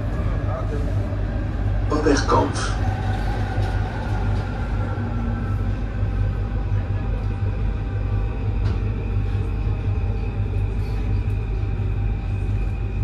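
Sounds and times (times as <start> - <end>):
faint whines: 0.0 - 13.0
train rumbling: 0.0 - 13.0.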